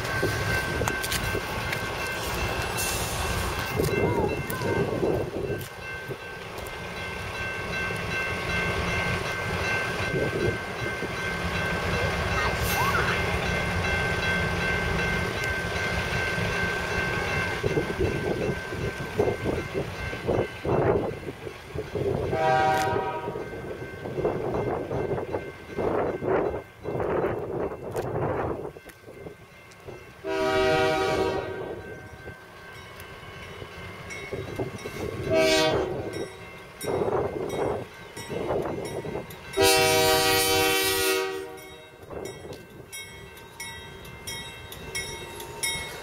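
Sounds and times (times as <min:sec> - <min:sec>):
diesel train rumble: 0:00.0 - 0:46.0
train horn blast: 0:22.3 - 0:23.5, 0:30.2 - 0:31.8, 0:35.3 - 0:36.1, 0:39.6 - 0:41.8.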